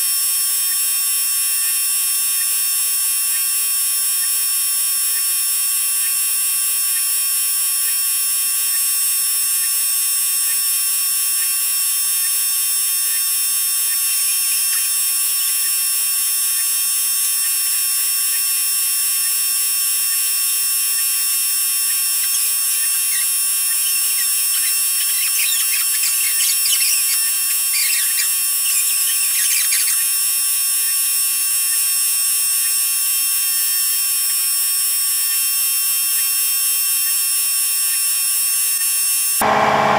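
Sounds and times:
high-pitched electric buzz: 0:00.0 - 0:39.9
faint crackles and squeaks: 0:12.1 - 0:15.8, 0:20.9 - 0:31.9.

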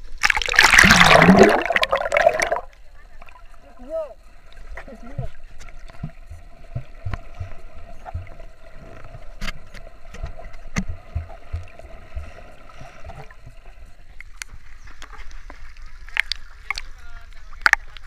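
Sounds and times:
faint steady hum: 0:00.0 - 0:18.0
underwater thumps on housing: 0:06.0 - 0:08.4, 0:10.7 - 0:12.4.

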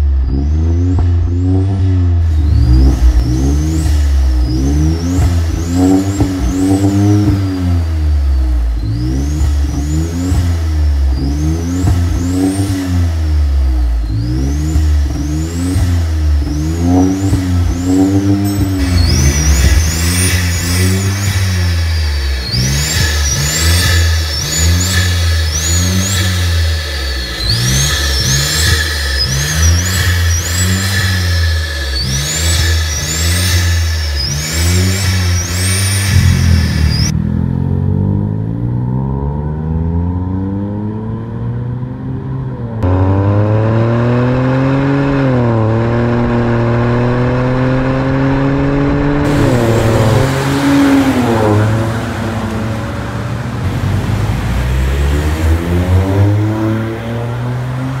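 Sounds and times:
car accelerating on road: 0:00.0 - 0:58.0
car engine revving in blips: 0:00.0 - 0:58.0
high turbo whistle: 0:02.2 - 0:09.5, 0:16.5 - 0:37.2, 0:49.2 - 0:53.5.

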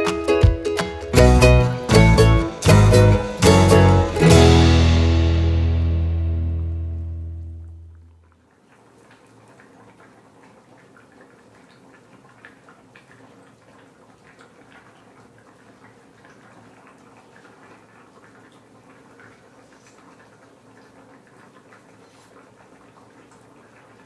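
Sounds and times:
soup bubbling: 0:07.4 - 0:24.0.

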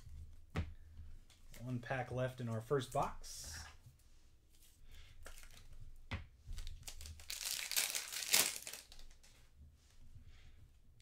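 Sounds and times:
foil wrapper crinkling: 0:06.6 - 0:09.3.

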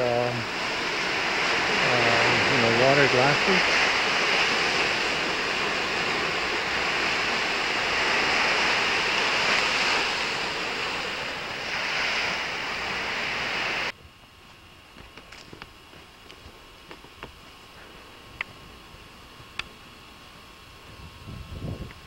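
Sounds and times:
sea waves on rocky shore: 0:00.0 - 0:13.9
wind on microphone: 0:20.8 - 0:22.0.

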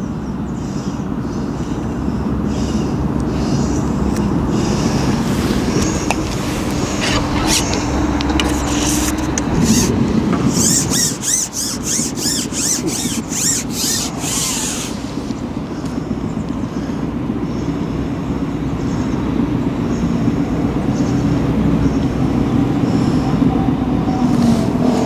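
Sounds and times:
road traffic: 0:00.0 - 0:25.0
gusting wind: 0:00.3 - 0:25.0
fishing pole squeaking: 0:04.9 - 0:15.4.

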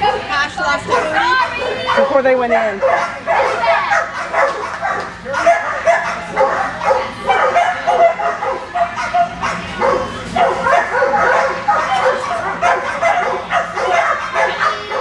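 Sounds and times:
many dogs barking: 0:00.0 - 0:15.0.

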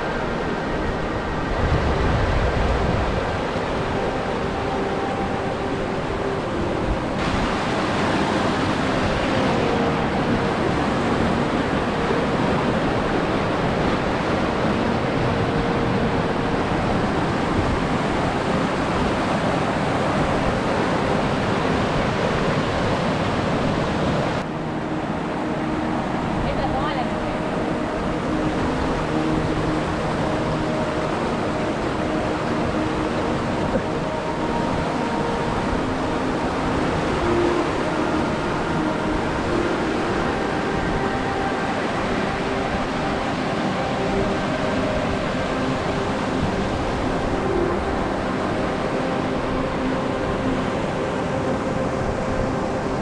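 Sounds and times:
river rushing over boulders: 0:00.0 - 0:53.0.

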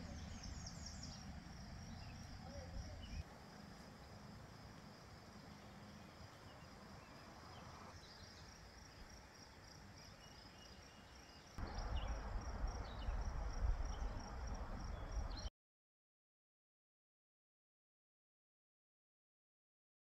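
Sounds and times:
insect chirring: 0:00.3 - 0:15.5
wind on microphone: 0:11.6 - 0:15.5.

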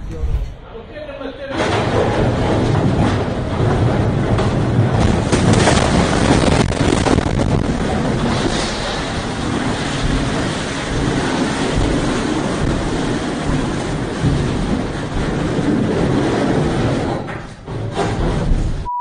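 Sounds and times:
wind buffeting microphone: 0:02.1 - 0:17.3
wind and sea rushing: 0:05.3 - 0:17.1.

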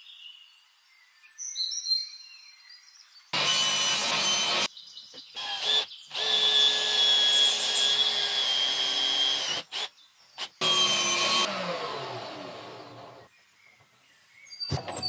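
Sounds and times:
power drill boring wood: 0:03.3 - 0:04.7, 0:05.4 - 0:13.3.

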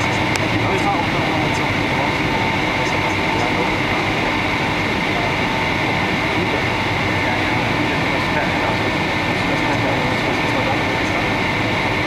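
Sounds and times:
jet engine rush: 0:00.0 - 0:12.0
steady high whine: 0:00.0 - 0:12.0.

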